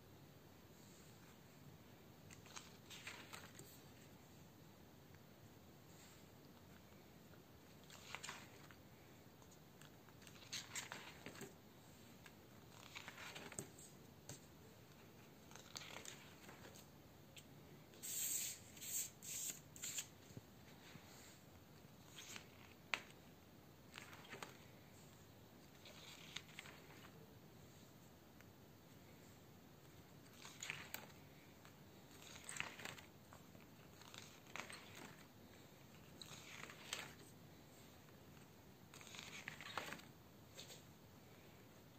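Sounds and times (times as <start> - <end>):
comic book pages turning: 2.3 - 4.1, 7.6 - 16.9, 18.0 - 21.4, 22.0 - 27.2, 30.2 - 40.9.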